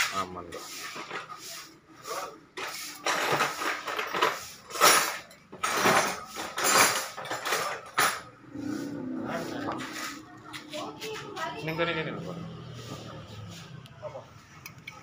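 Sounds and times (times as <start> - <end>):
metal tools clinking and rattling: 3.0 - 8.4.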